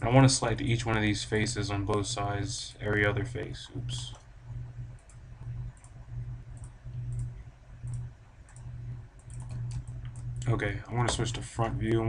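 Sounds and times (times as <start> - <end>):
low hum: 0.0 - 12.0
computer mouse clicking: 4.9 - 11.8.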